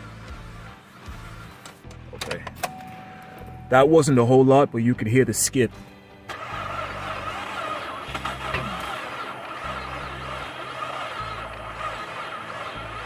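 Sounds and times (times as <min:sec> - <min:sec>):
car engine misfiring: 0:06.2 - 0:13.0.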